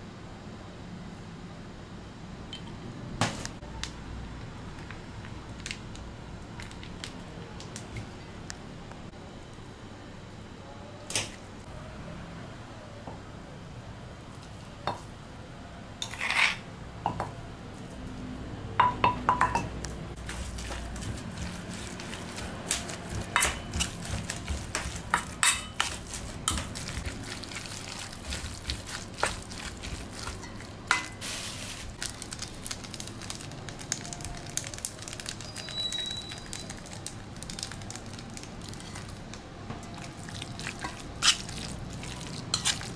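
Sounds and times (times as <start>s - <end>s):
metal spoon clinking on steel bowl: 24.7s - 26.7s.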